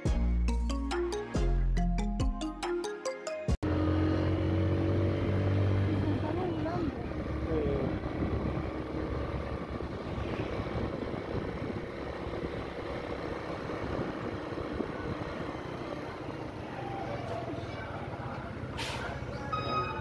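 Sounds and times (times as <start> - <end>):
vehicle engine and road noise: 3.6 - 20.0
wind rumble on microphone: 6.8 - 15.6.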